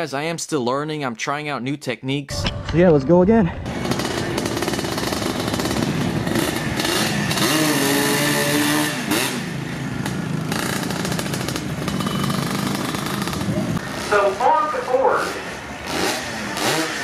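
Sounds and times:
two-stroke engine revving hard: 3.7 - 14.5, 15.2 - 17.0.

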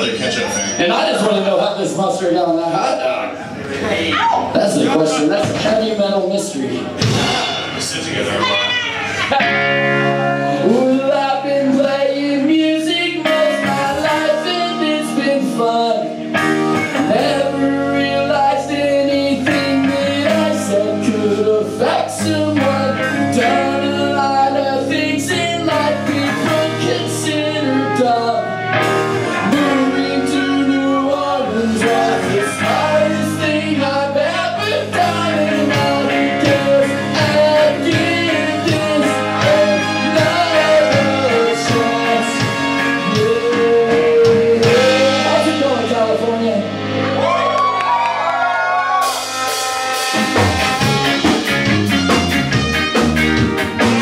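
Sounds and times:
bass guitar: 0.0 - 54.0
drums: 3.6 - 54.0
electric guitar: 8.3 - 54.0
horn section: 26.4 - 33.5, 36.0 - 45.8, 46.6 - 54.0.

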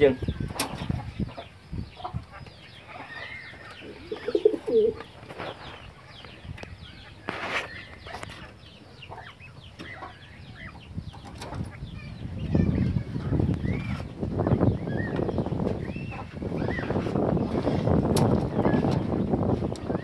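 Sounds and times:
small birds chirping: 0.0 - 20.0
pigeon cooing: 3.0 - 5.0.

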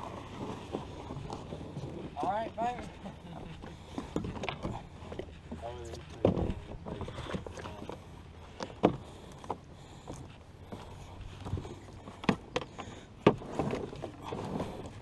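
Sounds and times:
paddle scraping against a dock: 0.0 - 15.0
canoe knocking against a dock: 12.1 - 14.6.

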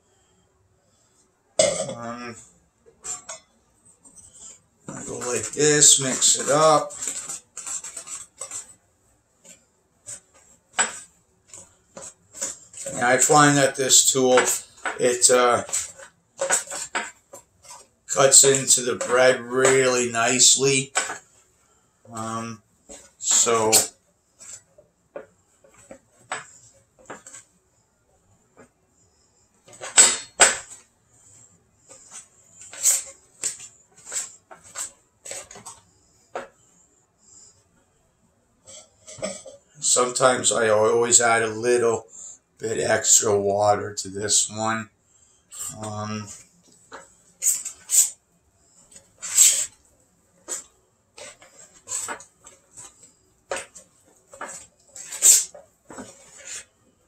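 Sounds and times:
utensil scraping glass bowl: 5.0 - 8.7.

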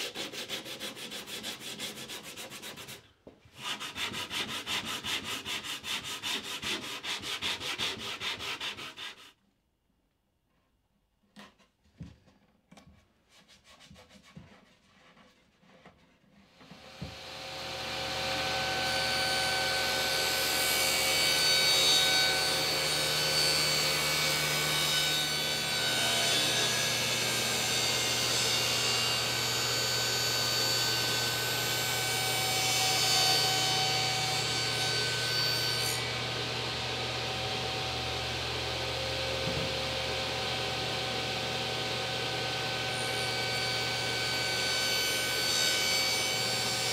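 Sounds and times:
table saw running: 16.8 - 46.9.

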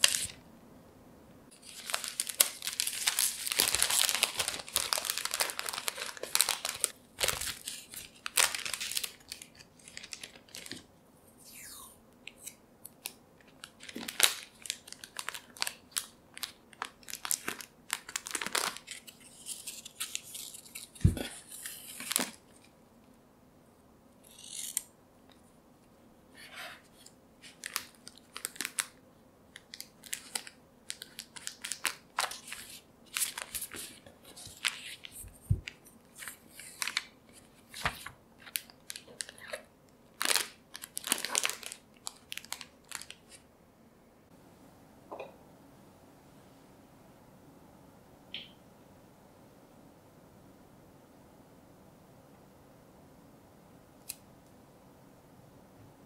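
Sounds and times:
plastic bag crinkling: 1.5 - 10.9, 13.4 - 22.4, 29.6 - 43.4.

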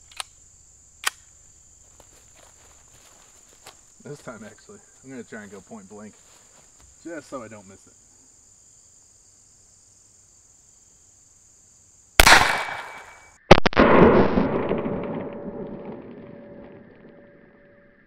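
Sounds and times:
pistol shots with echo: 12.2 - 14.0.

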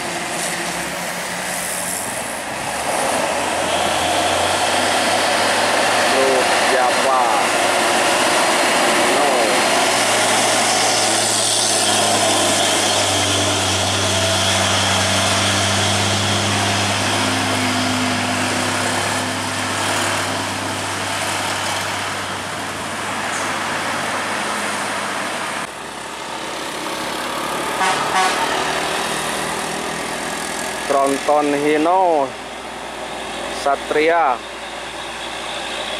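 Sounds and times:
diesel truck engine pulling hard: 0.0 - 35.9
traffic passing: 0.0 - 35.9
horn toots: 27.7 - 28.9.

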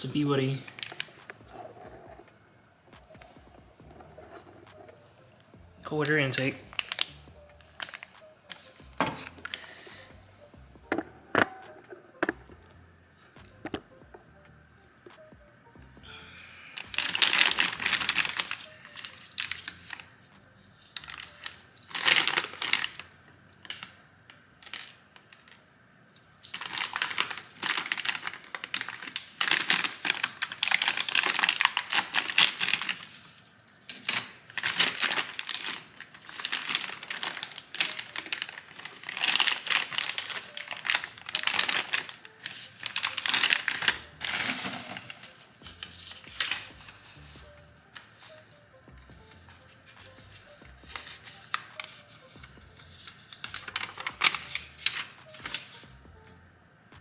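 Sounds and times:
plastic packaging crinkling: 0.1 - 2.2, 5.9 - 10.1, 16.8 - 24.0, 24.6 - 25.6, 26.4 - 33.3, 34.4 - 55.9.

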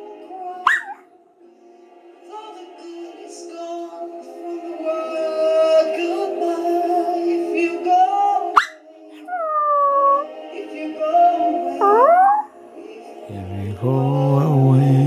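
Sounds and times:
dog howling: 0.7 - 1.0, 8.6 - 10.4, 11.8 - 12.5
music playing: 1.6 - 15.0.

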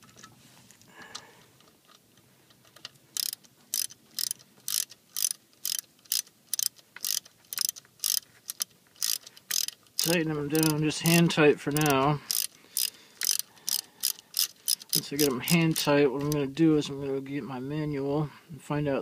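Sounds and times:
socket ratchet clicking: 3.2 - 16.4.

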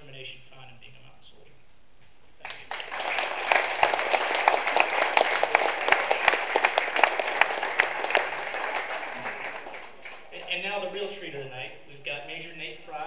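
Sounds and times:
audience applauding: 2.4 - 10.9.

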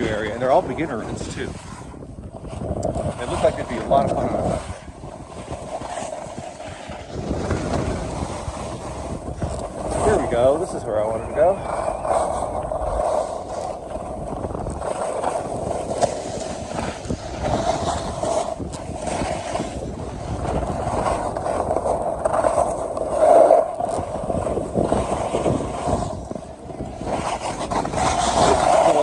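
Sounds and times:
skis scraping on snow: 0.0 - 29.0
wind on microphone: 0.0 - 29.0.

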